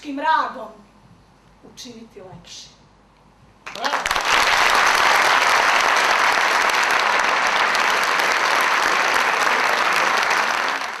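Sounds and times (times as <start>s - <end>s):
large audience applauding: 3.6s - 11.0s.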